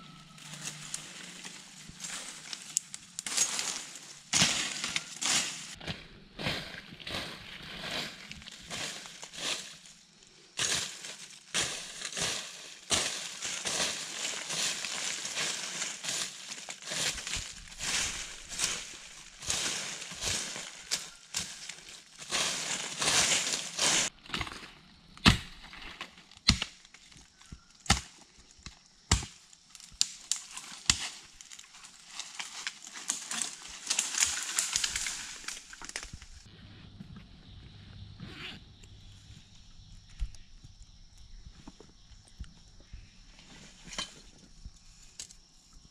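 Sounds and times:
dry leaves crunching and rustling: 0:00.0 - 0:05.8, 0:06.4 - 0:24.6, 0:30.2 - 0:36.5
sharp cracks of sticks: 0:00.6 - 0:05.8, 0:10.6 - 0:24.1.

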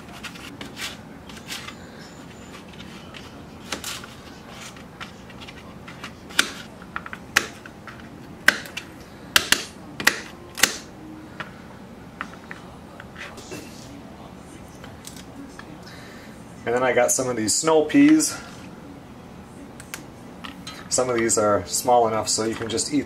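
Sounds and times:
knife chopping on plastic board: 0:08.4 - 0:10.9.

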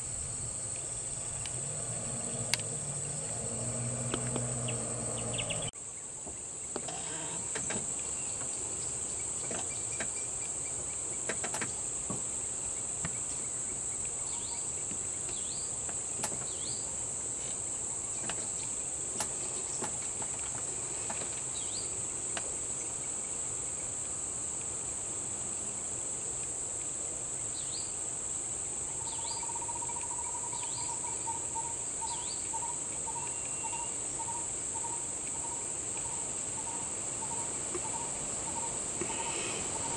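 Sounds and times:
high-pitched insect chorus: 0:00.0 - 0:39.9
birds chirping: 0:00.1 - 0:05.8, 0:29.0 - 0:39.9.

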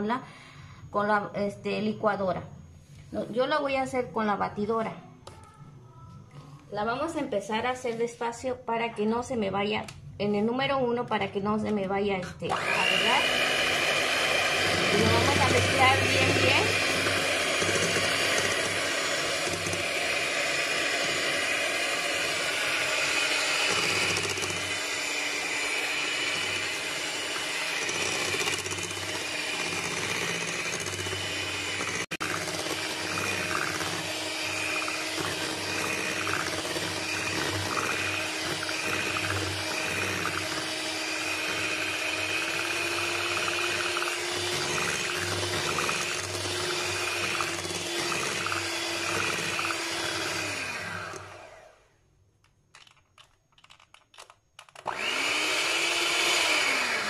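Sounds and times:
electric hand mixer whisking batter: 0:12.4 - 0:51.9, 0:54.8 - 0:57.0.

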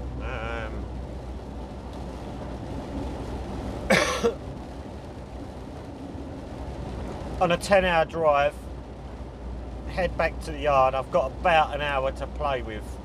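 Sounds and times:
lorry engine drone: 0:00.0 - 0:03.0
road noise inside cab: 0:00.0 - 0:13.0
man coughing: 0:03.9 - 0:04.4.

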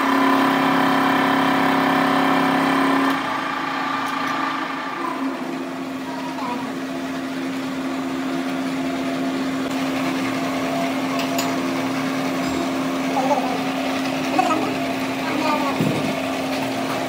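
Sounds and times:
factory machinery humming: 0:00.0 - 0:17.0.

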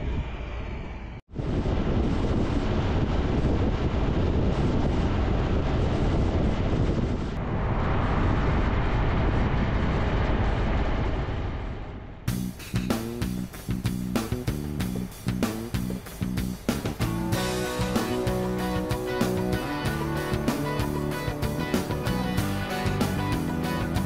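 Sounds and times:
motorcycle engine drone: 0:00.0 - 0:24.0
wind rush: 0:00.0 - 0:24.0
road noise: 0:07.4 - 0:24.0
strummed guitar music: 0:15.3 - 0:24.0.

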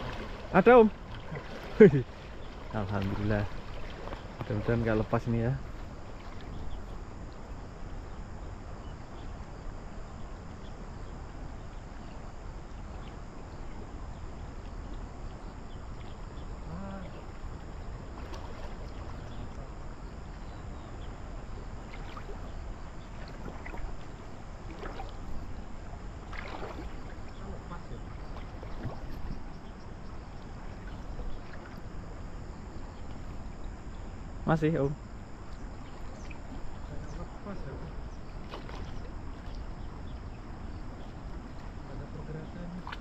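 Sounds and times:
river water rushing: 0:00.0 - 0:05.0.

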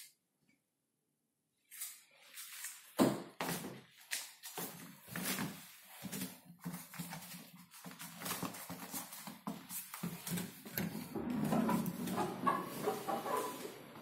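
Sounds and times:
footsteps in slippers: 0:01.6 - 0:11.1.

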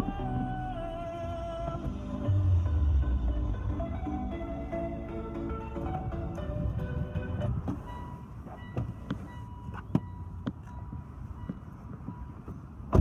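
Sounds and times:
background music: 0:00.0 - 0:08.7.

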